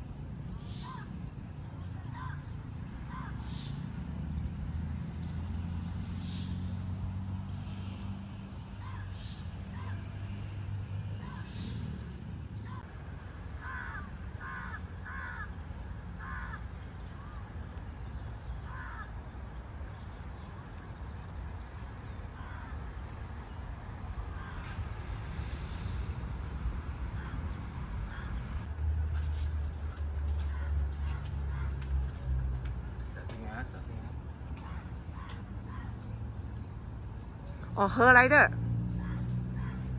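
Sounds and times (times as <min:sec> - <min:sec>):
crows cawing: 0:13.6 - 0:15.6, 0:16.2 - 0:17.4, 0:18.6 - 0:19.1, 0:22.4 - 0:22.8, 0:24.3 - 0:24.8, 0:28.1 - 0:28.6, 0:30.4 - 0:32.0, 0:34.6 - 0:36.0.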